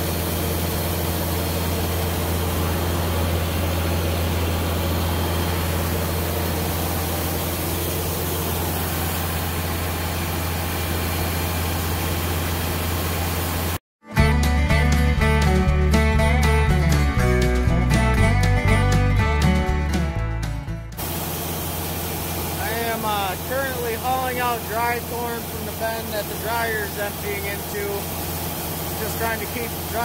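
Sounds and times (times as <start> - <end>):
diesel engine running: 0.0 - 30.0.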